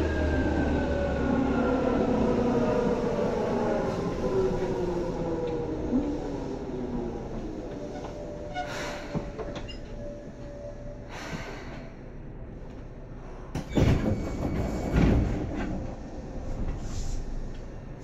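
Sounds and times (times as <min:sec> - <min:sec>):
train interior rumble: 0:00.0 - 0:18.0.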